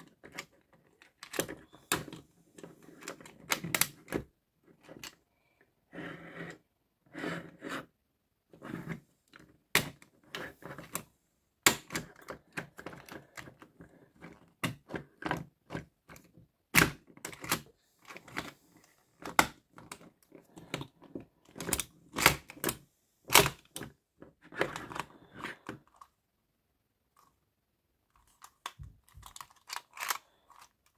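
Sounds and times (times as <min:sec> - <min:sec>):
plastic joints clicking and snapping: 0:00.0 - 0:05.2, 0:11.7 - 0:18.6, 0:19.2 - 0:26.1, 0:28.2 - 0:30.9
plastic parts rattling scrapes: 0:00.0 - 0:05.2, 0:08.5 - 0:11.1, 0:11.7 - 0:26.2, 0:28.1 - 0:30.9.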